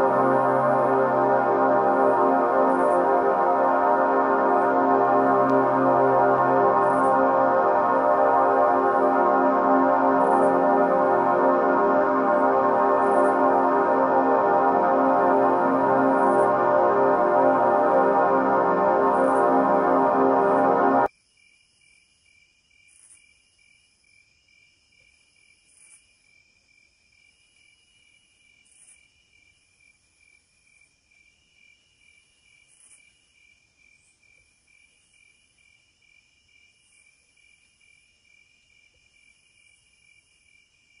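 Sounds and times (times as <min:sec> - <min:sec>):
music: 0:00.0 - 0:21.1.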